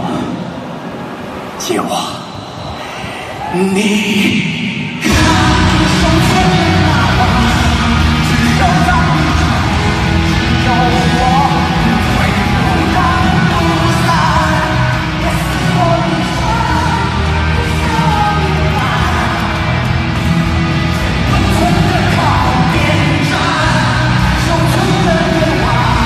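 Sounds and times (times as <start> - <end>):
person singing: 5.0 - 26.0
live rock band playing: 5.1 - 26.0.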